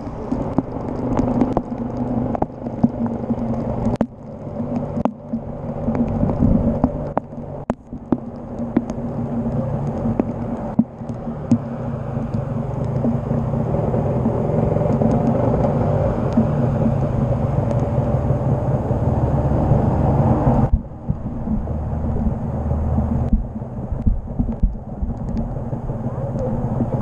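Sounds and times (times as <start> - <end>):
motorcycle engine running: 0.0 - 27.0
tyres on wet road: 0.0 - 27.0
wind: 0.0 - 27.0.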